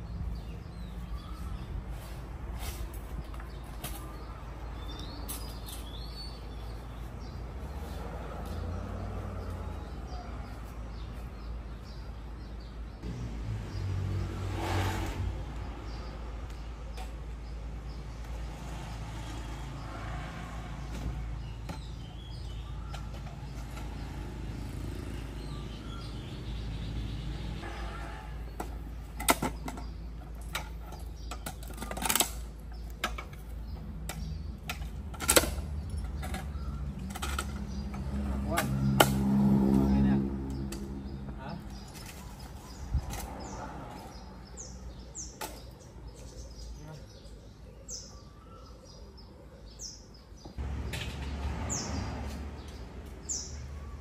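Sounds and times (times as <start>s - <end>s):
birds chirping: 0.0s - 54.0s
vehicle passing: 6.6s - 11.8s, 12.9s - 16.8s, 17.7s - 29.0s, 33.6s - 45.3s, 50.6s - 54.0s.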